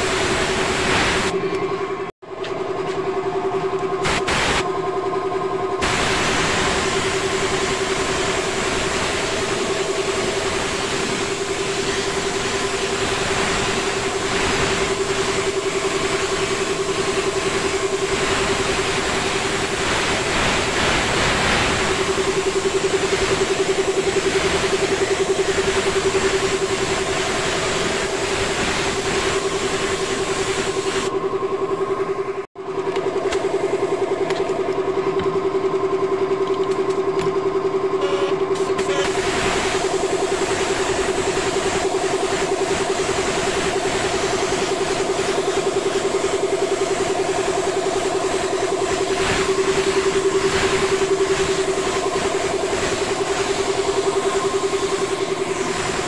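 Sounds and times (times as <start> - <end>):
spray gun hissing: 0.0 - 1.3, 4.0 - 4.6, 5.8 - 31.1, 38.6 - 56.0
air compressor humming: 0.0 - 56.0.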